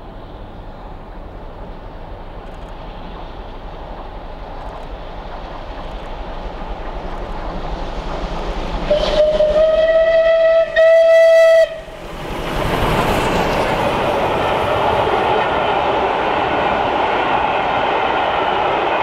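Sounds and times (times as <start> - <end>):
train rushing past: 0.0 - 19.0
steam locomotive whistle: 8.9 - 12.0.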